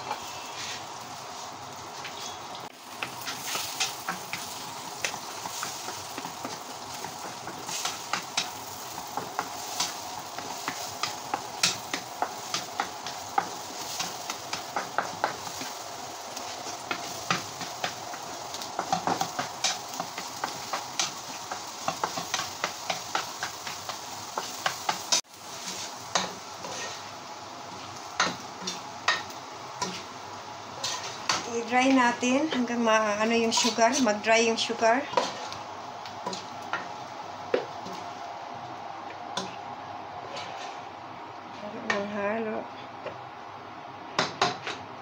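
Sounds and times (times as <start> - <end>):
eggs sizzling in frying pan: 0.0 - 45.0
spatula scraping and tapping pan: 2.0 - 15.8, 16.4 - 27.1, 28.2 - 30.1, 30.8 - 38.1, 40.2 - 40.8
utensil clicking and scraping pot: 33.4 - 34.2.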